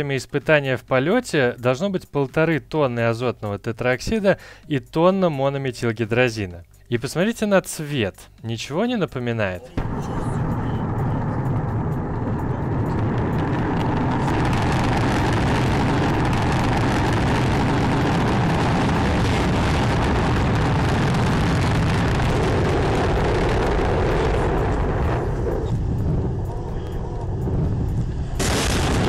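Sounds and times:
rocket engines roaring: 0:09.8 - 0:29.0.

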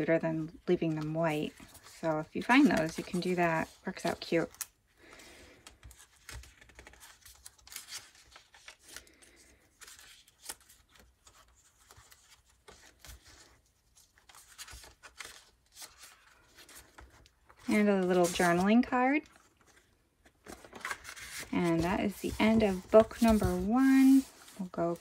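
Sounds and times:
paper pages rustling and turning: 0:00.0 - 0:25.0.

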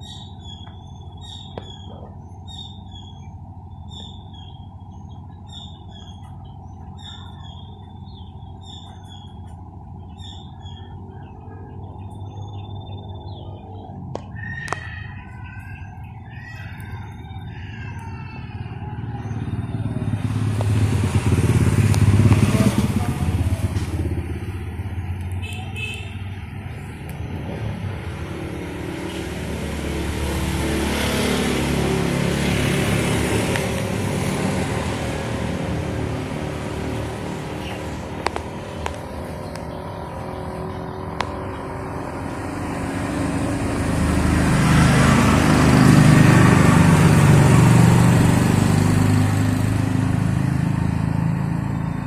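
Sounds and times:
small birds chirping: 0:00.0 - 0:20.8, 0:32.4 - 0:48.2
motor vehicles passing: 0:00.0 - 0:52.0.

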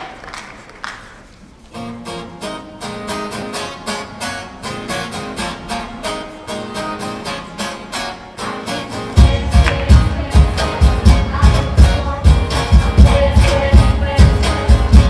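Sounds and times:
applause: 0:00.0 - 0:01.5
acoustic guitar strumming: 0:01.7 - 0:15.0.

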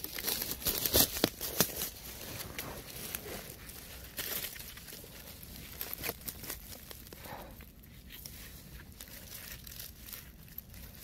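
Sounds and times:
twig snapping: 0:00.0 - 0:02.0, 0:04.0 - 0:07.2
dry leaves rustling and crackling: 0:00.0 - 0:11.0.

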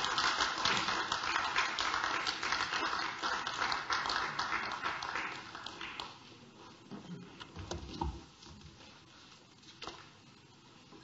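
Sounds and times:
people clapping: 0:00.0 - 0:06.4.

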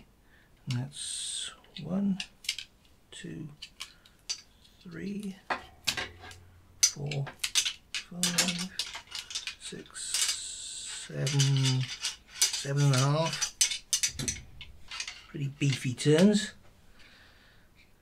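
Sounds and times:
copper wire clicking and rattling: 0:03.5 - 0:16.6.

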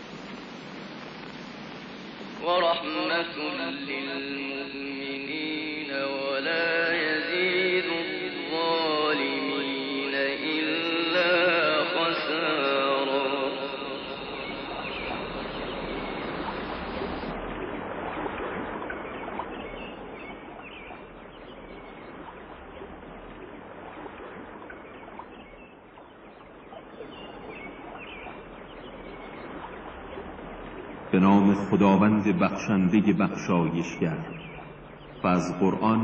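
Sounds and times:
running water: 0:00.0 - 0:36.0
small birds chirping: 0:13.1 - 0:36.0.

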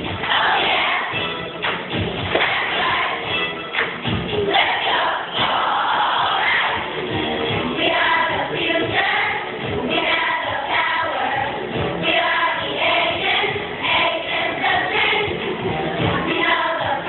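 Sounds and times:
children's choir singing: 0:00.0 - 0:01.4, 0:02.3 - 0:03.5, 0:04.4 - 0:17.0
backing music with low beat: 0:00.0 - 0:17.0.

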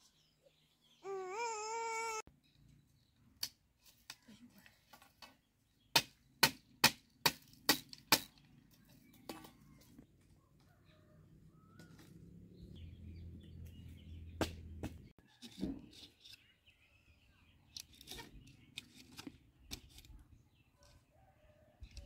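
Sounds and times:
machete chopping bamboo: 0:05.9 - 0:08.3.

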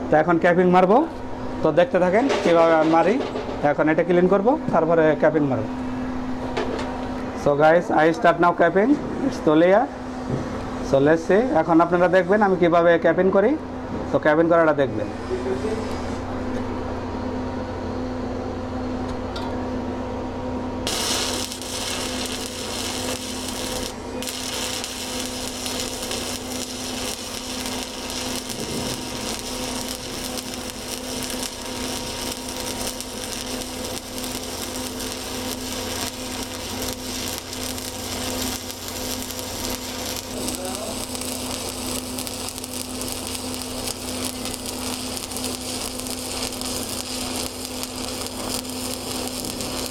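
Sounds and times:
low steady hum: 0:16.2 - 0:49.8
welding arc crackling: 0:20.8 - 0:49.9.

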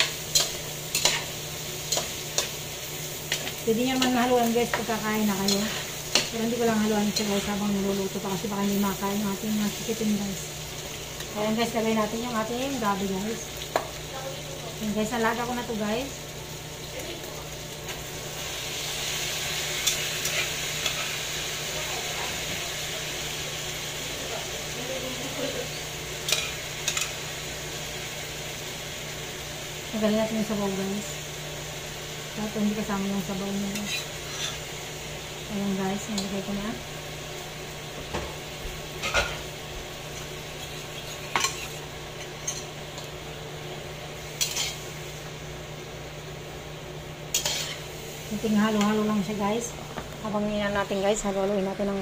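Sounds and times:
sizzling hiss from pot: 0:00.0 - 0:52.0
spatula scraping a saucepan: 0:33.7 - 0:34.7, 0:40.7 - 0:42.6.

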